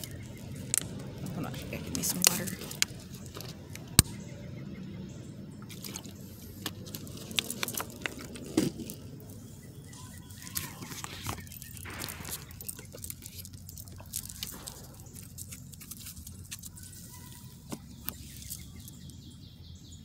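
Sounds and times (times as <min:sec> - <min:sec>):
cards clicking and tapping: 0:10.2 - 0:18.9.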